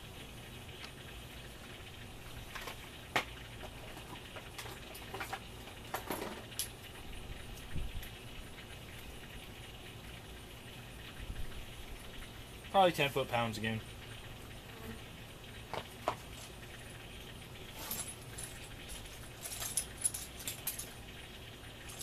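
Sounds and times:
metal hand tools clinking: 0:17.8 - 0:21.0.

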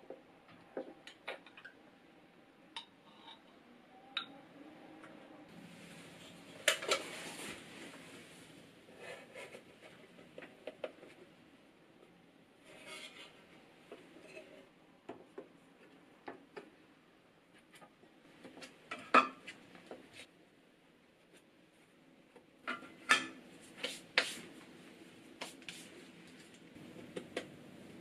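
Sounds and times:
bench scraper scraping dough: 0:12.7 - 0:13.4.

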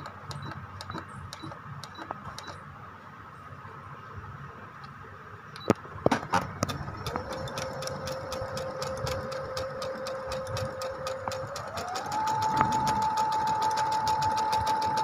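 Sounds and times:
sharp clicks: 0:00.0 - 0:02.6, 0:05.5 - 0:15.0
sewing machine stitching: 0:06.2 - 0:15.0.

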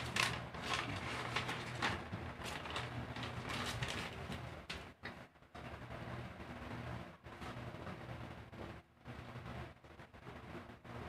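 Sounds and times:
paper crumpling and rustling: 0:00.0 - 0:04.4.

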